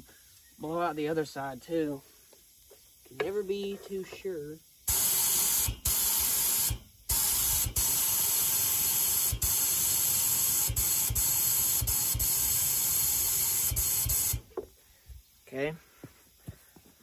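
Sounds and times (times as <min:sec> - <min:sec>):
compressed air hissing: 0:04.7 - 0:14.6.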